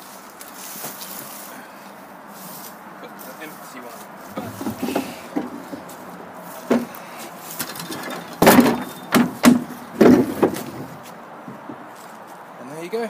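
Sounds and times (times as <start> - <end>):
bin thumping against wood: 4.3 - 6.0, 6.6 - 7.0, 7.6 - 11.8
plastic wheelie bin wheeled: 4.3 - 6.1, 6.7 - 11.0.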